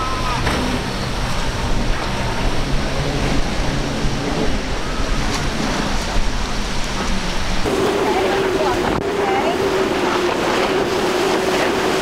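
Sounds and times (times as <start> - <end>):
outboard engines droning: 0.0 - 12.0
surf and wind rushing: 0.0 - 12.0.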